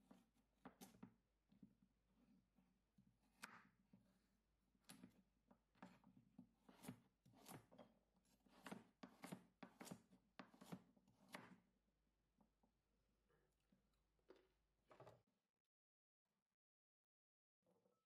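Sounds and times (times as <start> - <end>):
knife chopping on cutting board: 6.6 - 7.8, 8.4 - 11.6.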